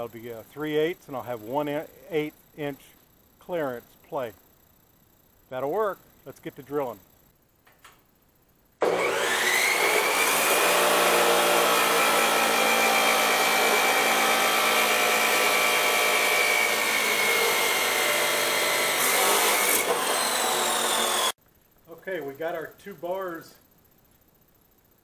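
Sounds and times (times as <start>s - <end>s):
chop saw whine: 8.8s - 21.4s.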